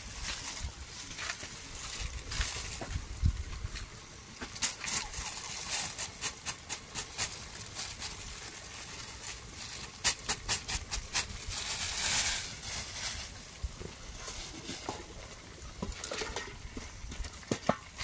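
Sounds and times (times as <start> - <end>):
plastic bag crinkling: 4.6 - 13.4.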